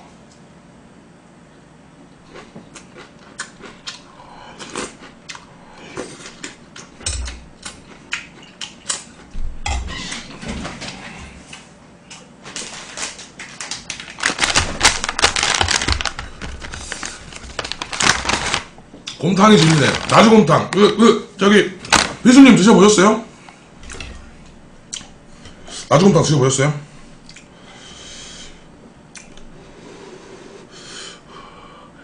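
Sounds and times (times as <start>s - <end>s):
plastic pack crackling: 12.4s - 21.1s, 21.8s - 22.4s
chewing clicks: 27.2s - 27.5s, 29.1s - 29.5s.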